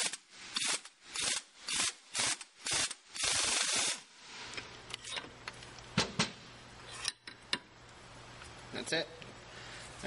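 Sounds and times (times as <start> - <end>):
impact wrench bursts: 0.0 - 4.1.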